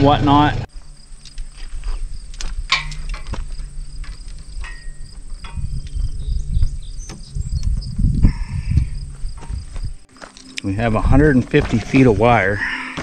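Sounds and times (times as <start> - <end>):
low rumble: 0.4 - 10.1
insects singing: 0.7 - 13.0
wire clicking and rustling: 0.8 - 10.7.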